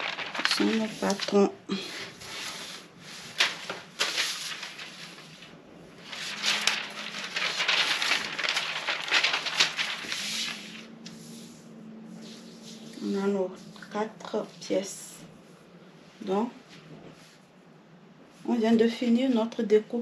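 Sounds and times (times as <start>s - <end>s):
paper rustling and crinkling: 0.0s - 11.4s.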